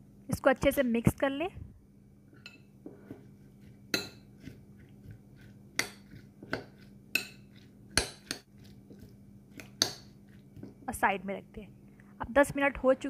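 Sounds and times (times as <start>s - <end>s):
stirring wet vegetables: 2.4s - 11.0s
spoon clinking against glass bowl: 3.9s - 4.3s, 5.8s - 8.4s.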